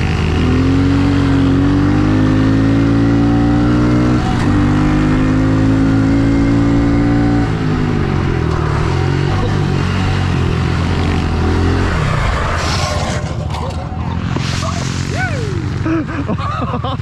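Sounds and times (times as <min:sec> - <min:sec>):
small motorcycle engine revving: 0:00.0 - 0:13.4.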